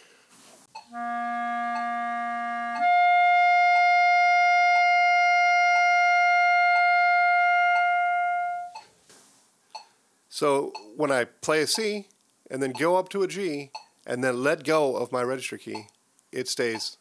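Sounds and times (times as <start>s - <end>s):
metronome ticking: 0.7s - 3.0s, 10.6s - 11.0s, 13.7s - 14.0s
clarinet playing long notes: 0.8s - 8.8s.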